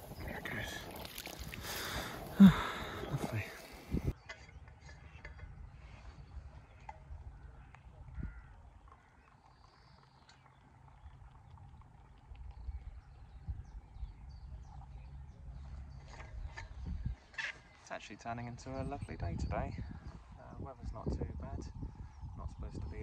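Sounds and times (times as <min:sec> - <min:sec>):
faint birds calling: 0:00.0 - 0:23.0.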